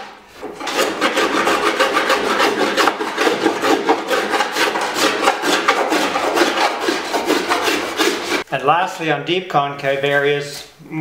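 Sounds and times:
scraper scraping wood: 0:00.5 - 0:08.5.

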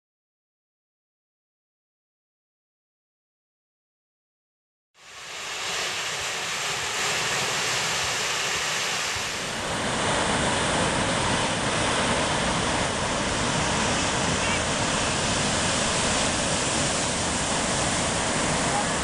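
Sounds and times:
ocean waves breaking on beach: 0:05.0 - 0:19.0
wind on microphone: 0:05.3 - 0:19.0.

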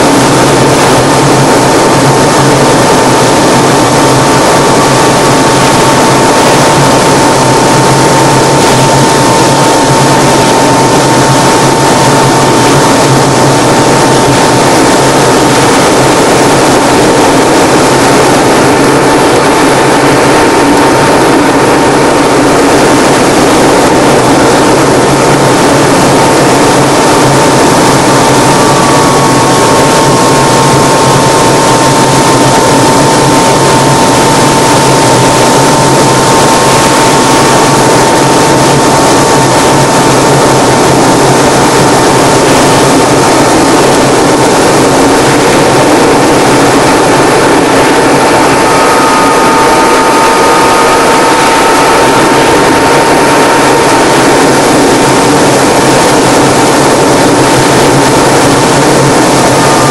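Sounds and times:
light aircraft engine running: 0:00.0 - 0:59.9
steady high whine: 0:00.0 - 0:59.9
faint drifting whine: 0:39.8 - 0:59.9.

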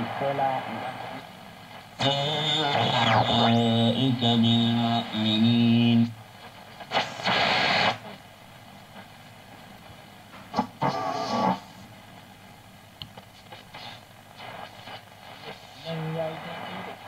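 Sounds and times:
radio station fragment: 0:00.0 - 0:08.2, 0:10.5 - 0:11.9, 0:13.5 - 0:17.0
radio static: 0:00.0 - 0:09.2, 0:09.8 - 0:12.2, 0:13.3 - 0:17.0
low hiss: 0:00.0 - 0:17.0.

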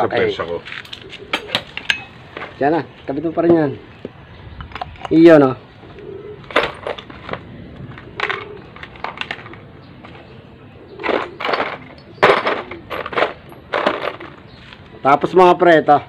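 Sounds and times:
tools and engine parts clanking: 0:00.5 - 0:02.6, 0:04.6 - 0:05.3, 0:06.4 - 0:14.8.

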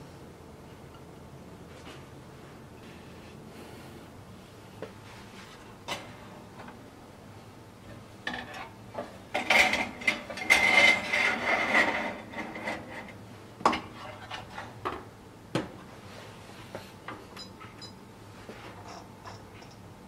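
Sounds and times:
metal rack and tray clattering: 0:08.3 - 0:13.0.

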